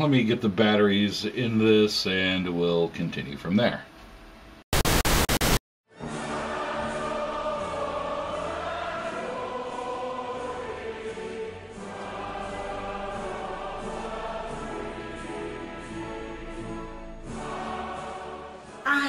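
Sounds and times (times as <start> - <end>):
choir singing held notes: 6.0 - 19.0.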